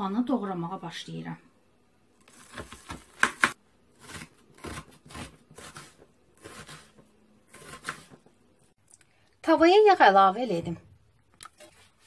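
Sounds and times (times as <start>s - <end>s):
knife slicing onion: 2.2s - 8.4s.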